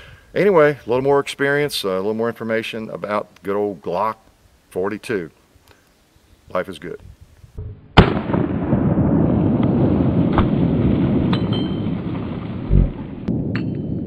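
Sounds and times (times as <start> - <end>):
low rumble: 7.6 - 14.0
pistol shots: 8.0 - 8.5.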